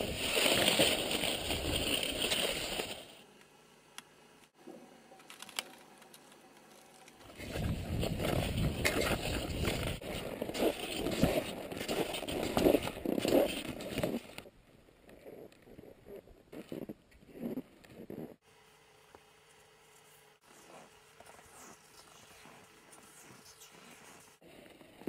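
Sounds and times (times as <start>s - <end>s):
wind noise on microphone: 7.4s - 10.6s.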